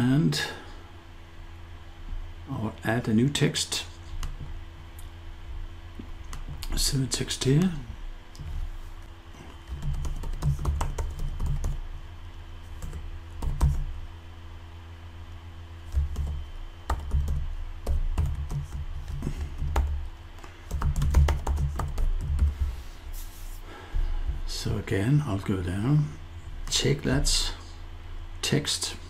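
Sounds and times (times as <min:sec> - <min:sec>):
faint steady hum: 0:00.0 - 0:29.0
typing on computer keyboard: 0:09.6 - 0:11.8, 0:12.8 - 0:13.8, 0:15.9 - 0:20.0, 0:20.6 - 0:22.5.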